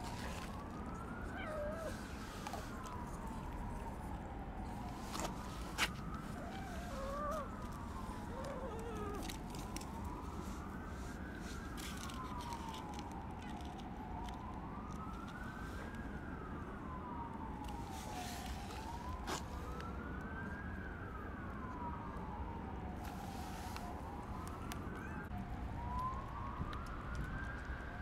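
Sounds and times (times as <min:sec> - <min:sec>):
siren wailing: 0:00.0 - 0:28.0.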